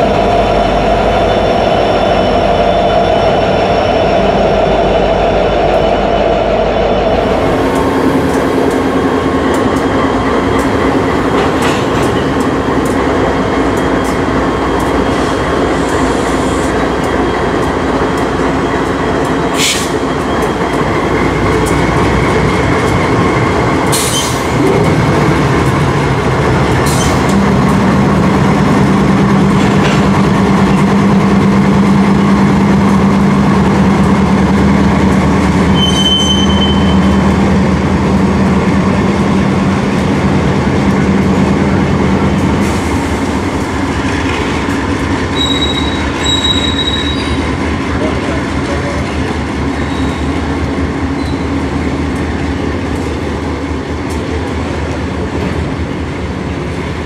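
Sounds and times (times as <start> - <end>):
locomotive engine drone: 0.0 - 57.0
high wheel squeal: 35.7 - 37.2, 45.3 - 47.5, 49.8 - 50.4, 51.1 - 51.6.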